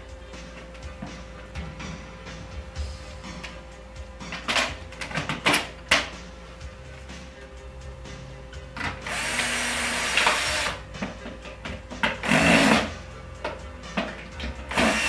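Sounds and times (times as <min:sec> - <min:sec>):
cordless drill driving screws: 0:09.0 - 0:10.8, 0:12.2 - 0:12.9, 0:14.7 - 0:15.0.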